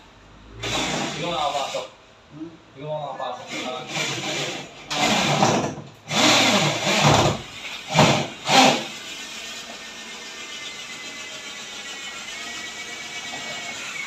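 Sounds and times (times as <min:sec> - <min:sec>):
cordless drill motor spinning: 0:06.1 - 0:14.0.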